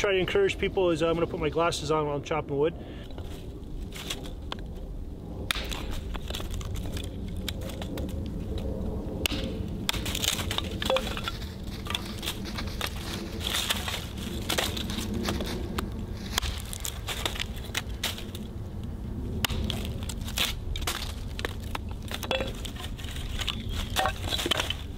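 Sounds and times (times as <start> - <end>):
dry wood cracking apart: 3.1 - 24.9
hatchet chopping kindling: 5.5 - 7.8, 9.2 - 15.4, 16.3 - 18.4, 19.4 - 24.9.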